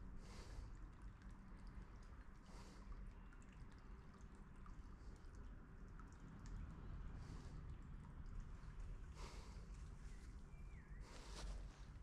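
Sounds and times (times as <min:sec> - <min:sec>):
light ticks: 0:00.7 - 0:06.8.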